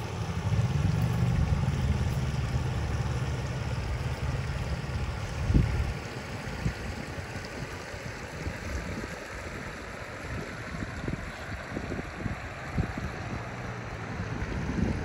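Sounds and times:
river water flowing over stones: 0:00.0 - 0:15.0
wind on microphone: 0:03.8 - 0:15.0.

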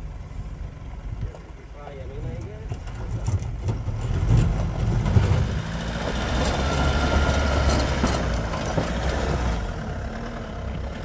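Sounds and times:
vehicle engine idling low: 0:00.0 - 0:05.9.

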